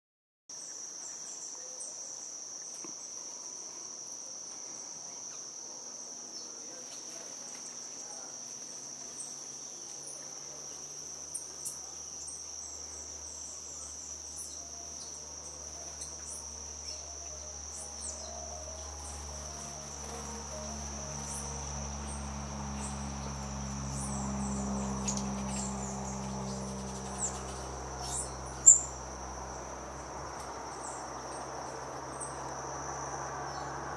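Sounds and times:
cricket trilling: 0:00.6 - 0:33.9
low droning hum: 0:08.0 - 0:33.9.

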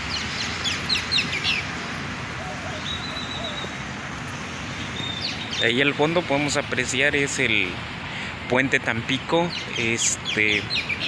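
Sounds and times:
bird chirps: 0:00.0 - 0:01.8, 0:02.4 - 0:03.8, 0:04.8 - 0:05.8, 0:09.5 - 0:11.0
steady background noise: 0:00.0 - 0:11.0
high bird whistle: 0:02.4 - 0:03.8.

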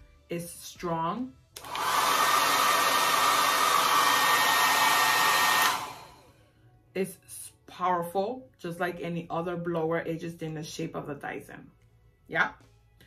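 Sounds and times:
hair dryer running: 0:01.6 - 0:06.3.

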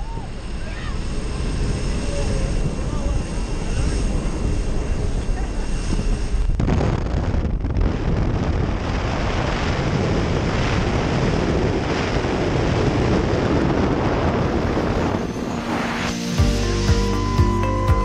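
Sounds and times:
wind buffeting microphone: 0:00.0 - 0:16.0
wind rushing: 0:00.0 - 0:17.7
propeller plane engine: 0:00.0 - 0:18.0.

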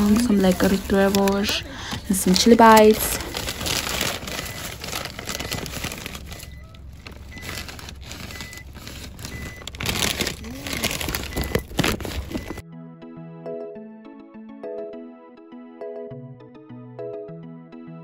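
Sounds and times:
car road noise rumble: 0:00.0 - 0:12.6
plastic snack packet crinkling: 0:00.0 - 0:12.6.

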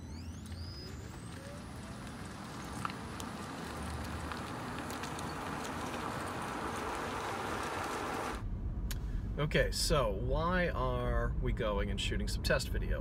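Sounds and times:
wind and road noise: 0:00.0 - 0:13.0
faint clicks: 0:01.3 - 0:06.4.

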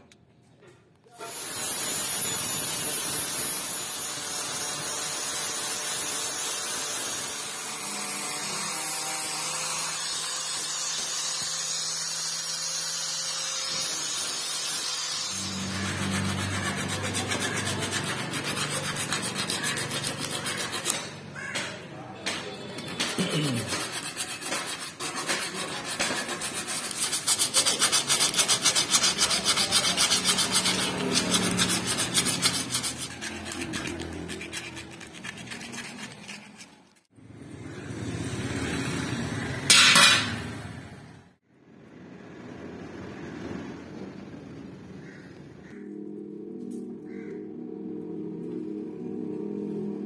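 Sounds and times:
sanding metal by hand: 0:01.2 - 0:21.2, 0:22.8 - 0:37.1.

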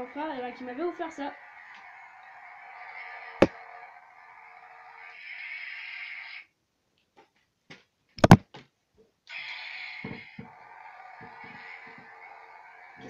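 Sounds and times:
plastic toy lightsabers knocking: 0:08.2 - 0:08.4.

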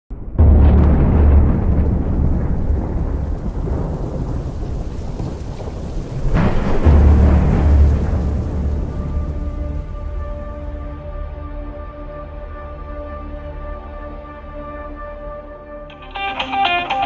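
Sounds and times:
sharp thunderclap: 0:00.1 - 0:12.4
thunder rumbling: 0:00.1 - 0:12.8
steady rain: 0:00.4 - 0:11.4.

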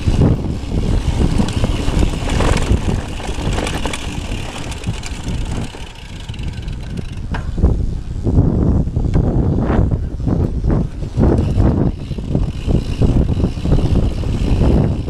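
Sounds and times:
bike clattering over bumps: 0:00.0 - 0:07.7, 0:10.4 - 0:15.0
wind rumbling on microphone: 0:00.0 - 0:15.0
tyres rolling on dirt: 0:00.5 - 0:07.5.

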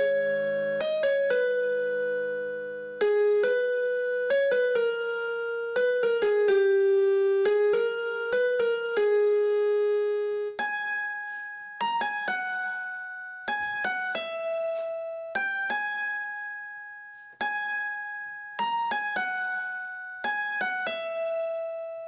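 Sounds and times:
slow keyboard melody: 0:00.0 - 0:22.0.

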